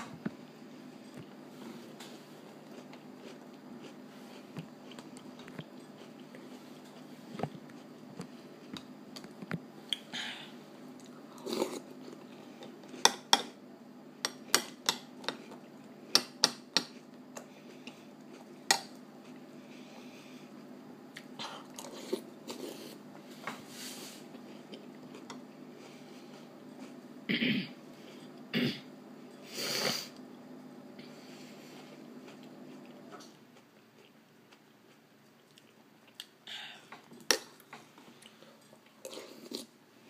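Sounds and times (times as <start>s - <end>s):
crunchy cereal being chewed: 1.0s - 10.1s, 16.8s - 23.0s, 24.3s - 27.1s, 31.8s - 36.4s, 37.0s - 39.8s.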